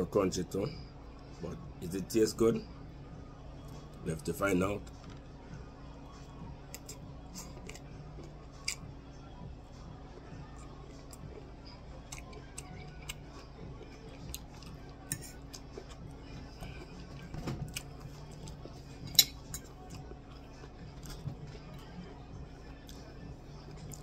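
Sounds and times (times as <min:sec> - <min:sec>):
low steady hum: 0:00.0 - 0:24.0
person chewing crunchy vegetables: 0:06.7 - 0:08.9, 0:10.4 - 0:19.0, 0:19.6 - 0:22.0
fork clicking and scraping plate: 0:15.1 - 0:15.4.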